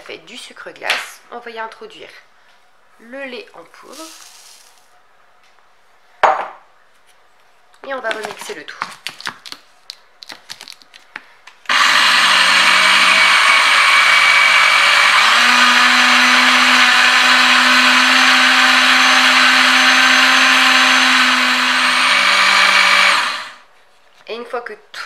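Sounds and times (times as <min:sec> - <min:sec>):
blender motor humming: 0:11.7 - 0:23.6.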